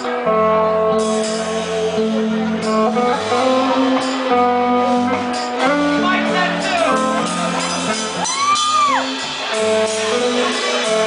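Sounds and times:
bass line: 0:00.0 - 0:11.0
electric guitar sustained notes: 0:00.0 - 0:11.0.

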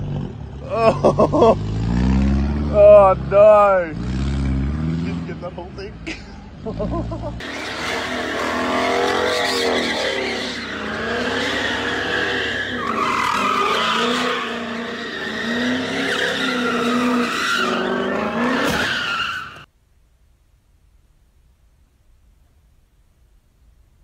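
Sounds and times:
car engine revving: 0:00.0 - 0:05.7, 0:06.6 - 0:19.7
tyres squealing and skidding: 0:07.4 - 0:19.7.

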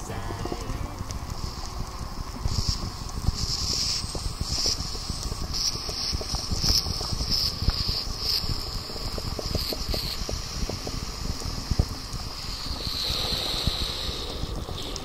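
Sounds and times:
high-pitched air hissing spurts: 0:00.0 - 0:15.0
crackle of small clicks: 0:00.2 - 0:15.0.

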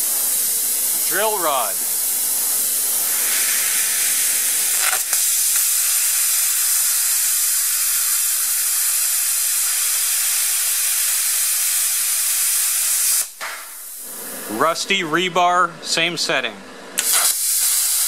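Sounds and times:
plasma cutter hissing: 0:00.0 - 0:14.7, 0:17.0 - 0:18.0.

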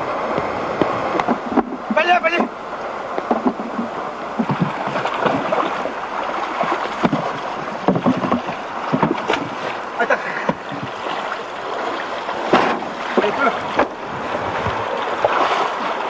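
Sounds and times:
splashing water: 0:00.4 - 0:16.0
knocks and clatter: 0:03.2 - 0:05.5, 0:07.0 - 0:09.6, 0:12.5 - 0:14.0.

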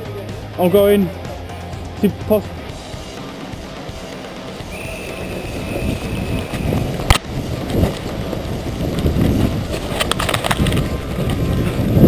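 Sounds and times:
running footfalls: 0:02.7 - 0:12.0
wind buffeting microphone: 0:02.7 - 0:12.0
sharp crack: 0:06.4 - 0:07.3.

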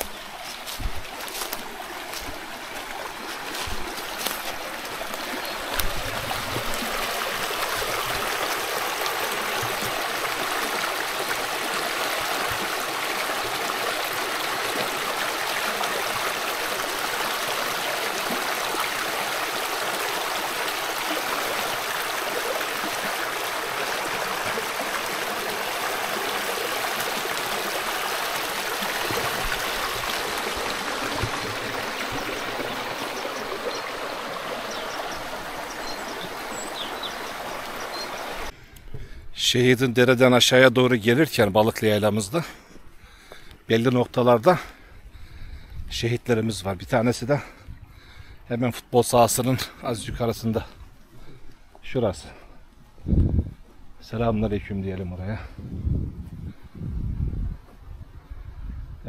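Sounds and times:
stream babbling over stones: 0:00.0 - 0:38.5.

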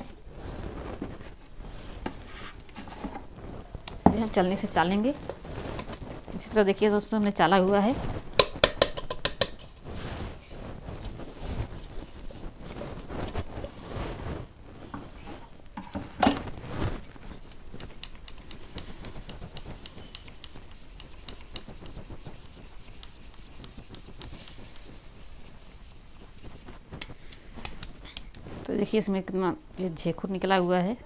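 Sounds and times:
powder rubbed through metal sieve: 0:09.5 - 0:14.5, 0:16.5 - 0:26.9.

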